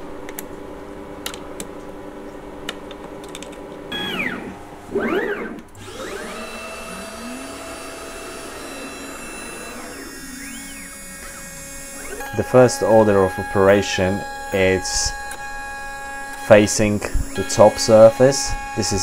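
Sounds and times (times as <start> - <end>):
steady machine hum: 0.0 - 19.0
motor whines: 3.9 - 19.0
spindle whine: 3.9 - 19.0.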